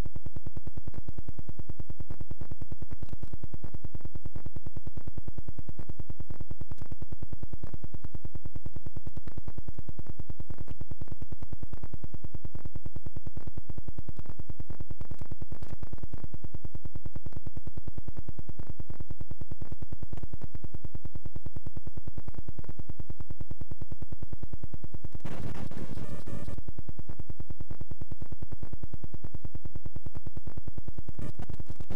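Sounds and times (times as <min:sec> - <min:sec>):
blank videotape electronic buzz: 0:00.0 - 0:31.9
steady hum: 0:00.0 - 0:31.9
burst of harsh noise: 0:25.2 - 0:26.6.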